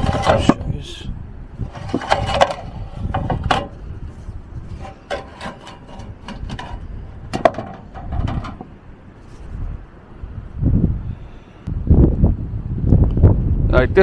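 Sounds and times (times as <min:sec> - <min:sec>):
sheet metal knocking and rubbing: 0:00.0 - 0:00.6, 0:01.7 - 0:03.8, 0:04.7 - 0:08.7
wind buffeting on microphone: 0:00.0 - 0:14.0.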